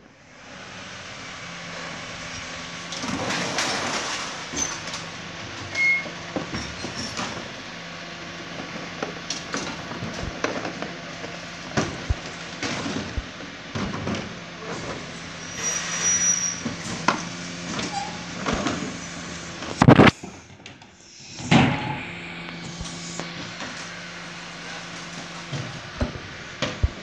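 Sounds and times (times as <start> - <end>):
wheelie bins knocking and clunking: 2.8 - 7.6, 8.4 - 15.2, 16.6 - 20.7, 23.4 - 27.0
lorry engine humming: 4.2 - 27.0.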